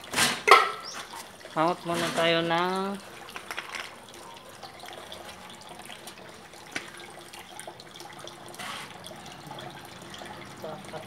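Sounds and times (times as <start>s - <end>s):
water splash: 0.0s - 4.0s
water trickling: 0.0s - 11.0s.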